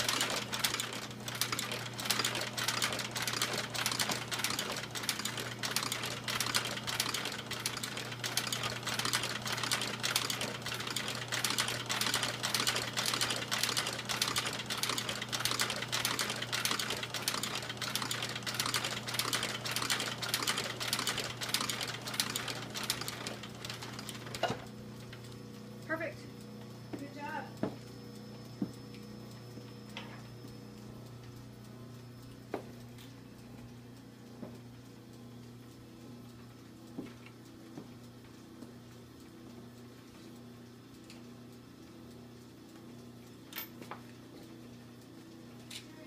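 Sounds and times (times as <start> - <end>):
sewing machine stitching leather: 0.0 - 24.6.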